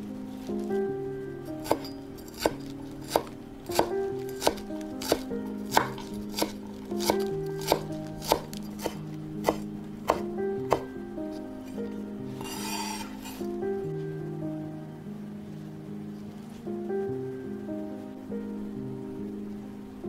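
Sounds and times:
background music: 0.0s - 20.0s
knife chopping on wooden board: 1.6s - 10.9s.

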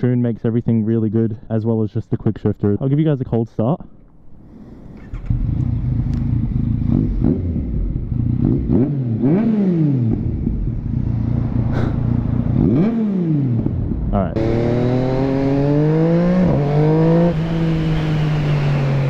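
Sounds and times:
motorcycle engine starting and revving: 4.4s - 19.0s.

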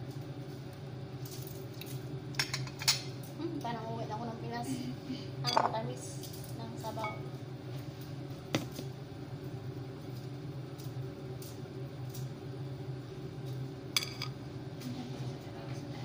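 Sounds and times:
appliance humming: 0.0s - 16.0s.

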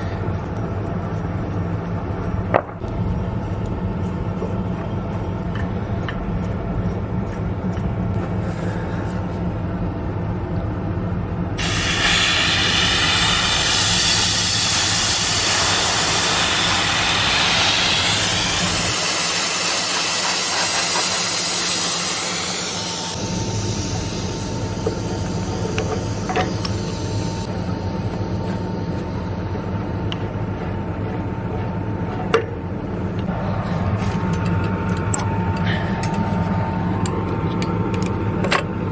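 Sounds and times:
gas hissing from valve: 11.6s - 27.5s
low engine hum: 22.2s - 38.9s.

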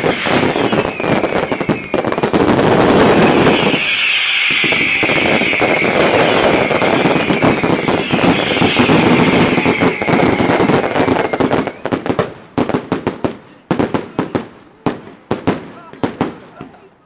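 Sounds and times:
high whistling: 0.0s - 2.3s, 2.9s - 12.1s
firework rockets hissing and crackling: 0.0s - 16.8s
fireworks bursting with sharp cracks: 0.0s - 16.9s.

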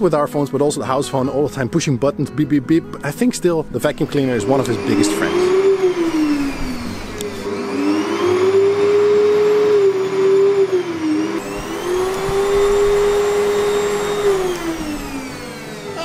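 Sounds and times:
vacuum cleaner motor whine: 3.9s - 16.0s.

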